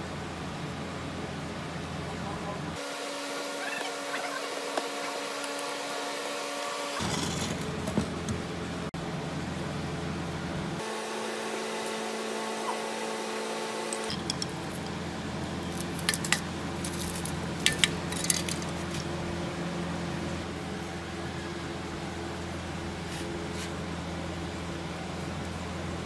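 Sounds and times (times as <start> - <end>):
steady background hum: 0.0 - 26.0
metal tools clinking: 14.1 - 15.0, 15.6 - 19.1.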